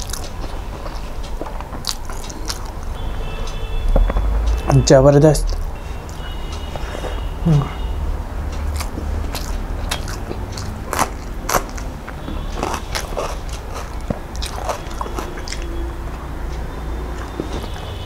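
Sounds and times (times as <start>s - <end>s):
person chewing food: 0.0s - 3.4s, 8.5s - 17.9s.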